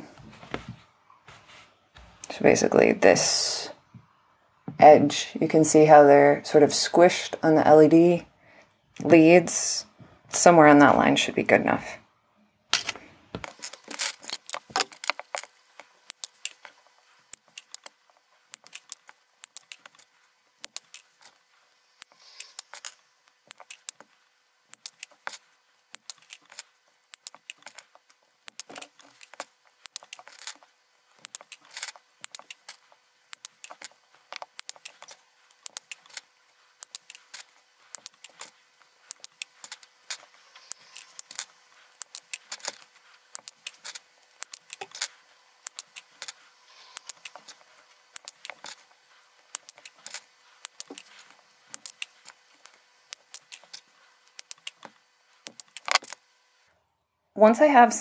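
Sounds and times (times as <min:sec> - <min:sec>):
wire cutters snipping: 0:31.2 - 0:36.2, 0:36.8 - 0:38.5, 0:39.1 - 0:46.4, 0:47.0 - 0:47.6, 0:48.2 - 0:48.8, 0:49.5 - 0:56.2.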